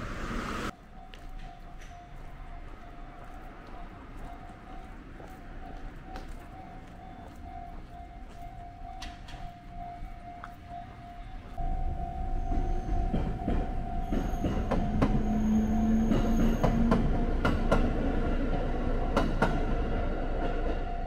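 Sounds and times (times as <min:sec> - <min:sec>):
crossing warning signal tone: 0:00.6 - 0:21.0
train wheels clacking on rails: 0:01.3 - 0:10.4, 0:11.6 - 0:21.0.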